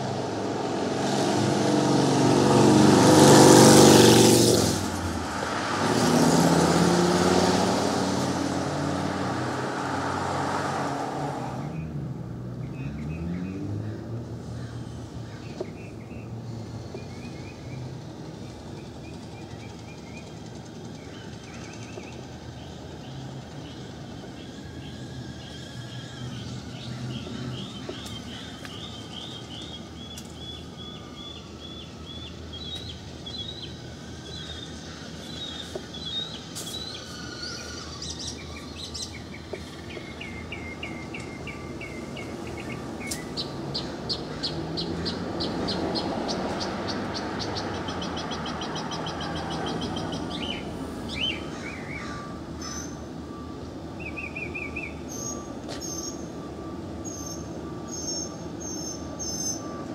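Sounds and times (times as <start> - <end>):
car passing: 0.0 - 19.8, 22.2 - 55.9
steady street hum: 0.0 - 59.9
small birds chirping and trilling: 12.6 - 59.9.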